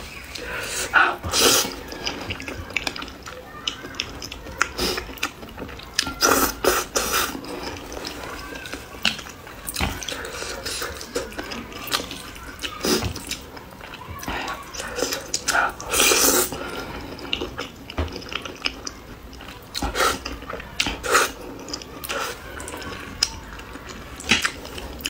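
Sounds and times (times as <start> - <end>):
sticky chewing: 0.1 - 25.0
wet slurping of noodles: 0.5 - 2.2, 14.3 - 17.2.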